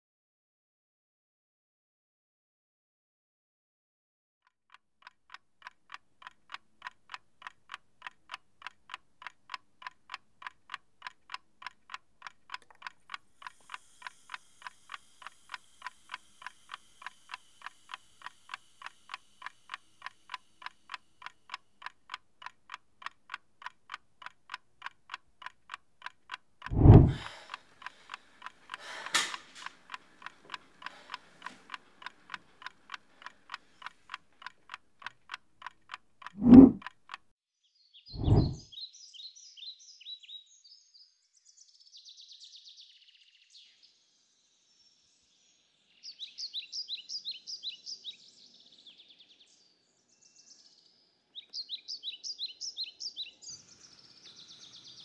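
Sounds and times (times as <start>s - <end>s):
clock ticking fast: 4.7s - 37.2s.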